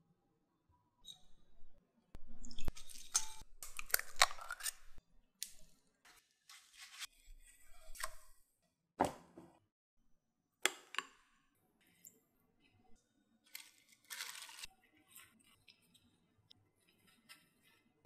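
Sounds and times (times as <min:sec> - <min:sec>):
spoon scraping glass bowl: 0:02.5 - 0:05.0.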